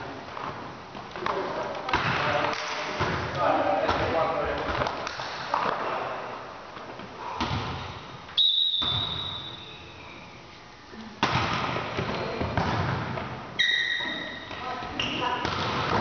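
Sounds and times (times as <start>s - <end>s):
volleyball strikes in a gymnasium: 0.3s - 10.1s, 11.0s - 16.0s
whistle-like tone: 8.4s - 10.4s, 13.6s - 14.3s.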